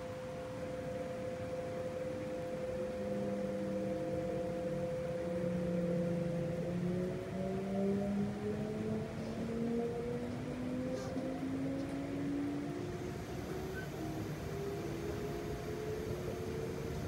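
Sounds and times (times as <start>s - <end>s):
steady train hum: 0.0s - 17.0s
rising electric motor tones: 2.8s - 17.0s.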